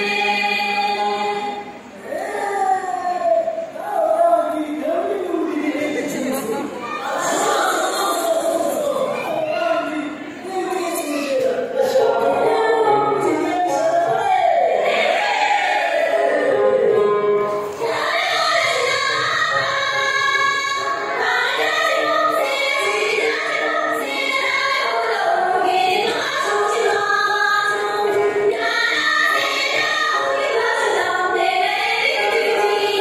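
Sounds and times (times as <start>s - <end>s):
group singing folk song: 0.0s - 2.4s, 11.8s - 33.0s.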